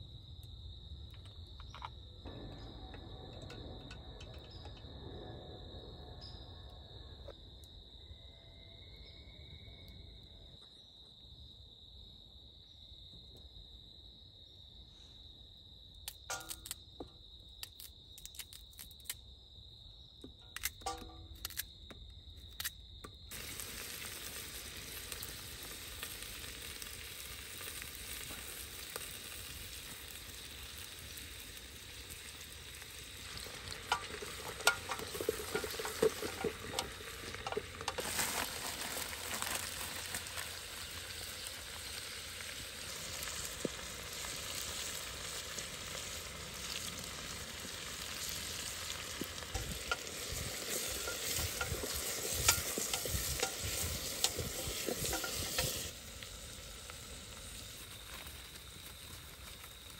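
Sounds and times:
food sizzling in a pan: 0:23.3 - 0:59.9.

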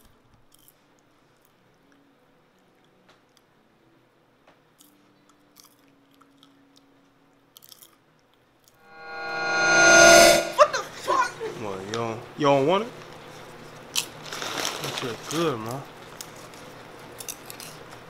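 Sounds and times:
popcorn chewing crunches: 0:04.8 - 0:06.9, 0:07.5 - 0:08.0, 0:13.9 - 0:18.0.

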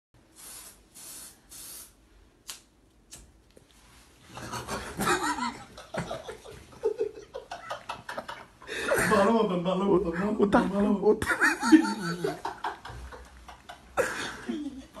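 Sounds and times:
short hissing bursts: 0:00.3 - 0:02.0
stifled giggling: 0:11.2 - 0:15.0.

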